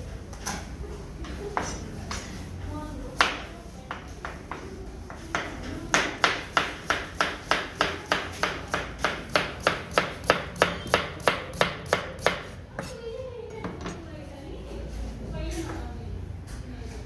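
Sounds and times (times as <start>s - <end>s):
knife chopping on cutting board: 5.3s - 12.9s.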